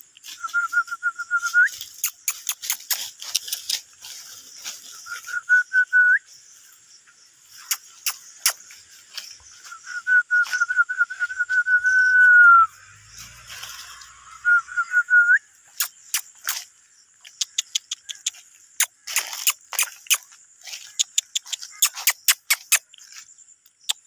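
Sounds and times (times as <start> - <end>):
dry leaves crackling: 0.1 - 23.4
person whistling: 0.4 - 1.8, 5.1 - 6.2, 9.7 - 12.7, 14.4 - 15.4.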